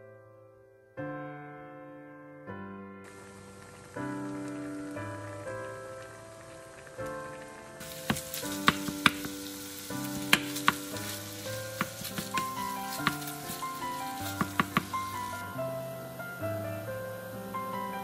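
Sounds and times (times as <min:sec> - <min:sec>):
meat sizzling in a frying pan: 0:03.1 - 0:18.0
soft background music: 0:03.2 - 0:18.0
wooden spatula knocking on pan: 0:07.8 - 0:15.3.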